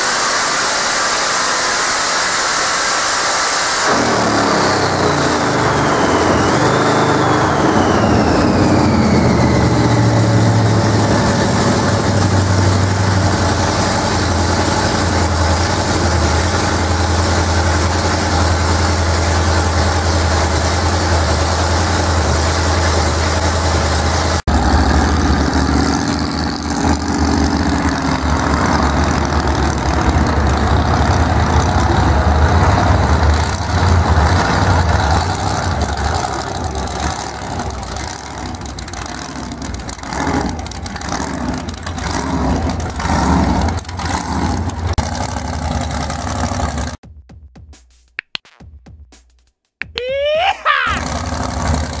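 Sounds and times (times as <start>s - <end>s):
engine deep steady rumble: 3.9s - 47.0s, 51.0s - 52.0s.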